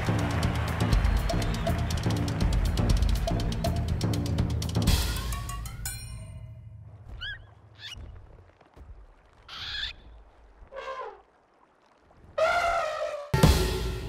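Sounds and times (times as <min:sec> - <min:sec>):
music: 0:00.0 - 0:06.8, 0:13.4 - 0:14.0.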